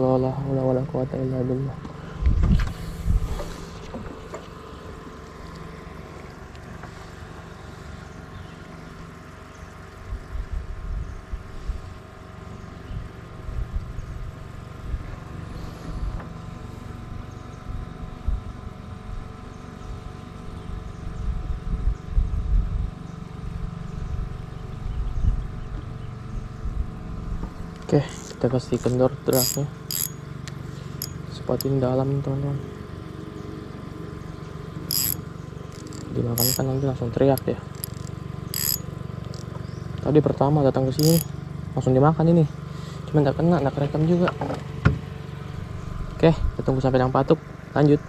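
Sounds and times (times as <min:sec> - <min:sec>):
small boat engine running: 0:00.0 - 0:48.0
wind rumbling on microphone: 0:02.1 - 0:04.1, 0:20.7 - 0:25.8.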